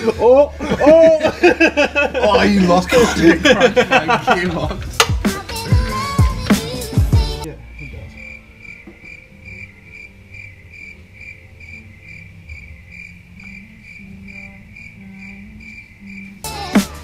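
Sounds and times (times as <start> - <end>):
cricket chirping: 7.5 - 16.6.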